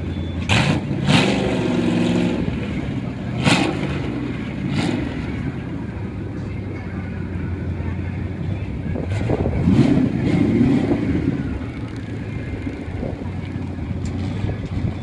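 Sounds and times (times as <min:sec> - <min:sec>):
car engine idling and revving: 0:00.0 - 0:15.0.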